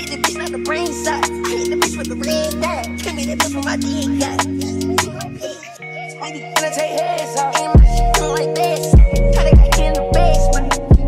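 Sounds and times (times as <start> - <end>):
hi-hat clicks: 0.0 - 5.3, 6.6 - 11.0
hip hop backing music: 0.0 - 11.0
deep bass hits: 7.8 - 8.4.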